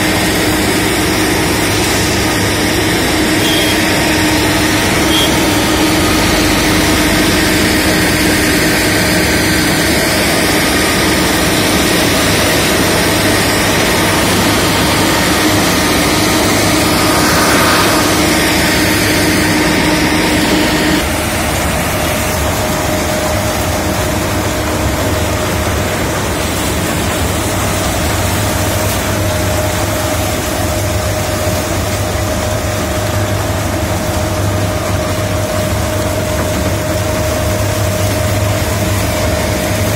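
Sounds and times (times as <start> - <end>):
harvester engine drone: 0.0 - 39.9.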